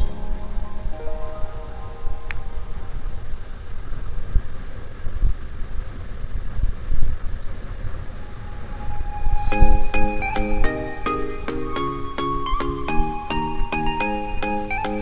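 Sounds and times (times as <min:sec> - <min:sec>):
vehicle wind and road noise: 0:01.7 - 0:09.8.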